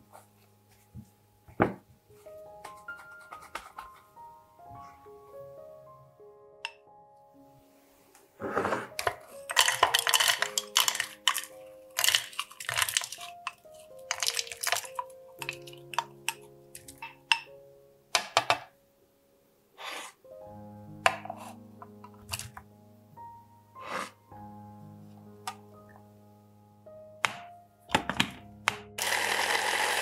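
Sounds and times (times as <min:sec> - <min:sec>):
soft background music: 0:00.0 - 0:30.0
berries rattling into plastic bowl: 0:08.9 - 0:16.1.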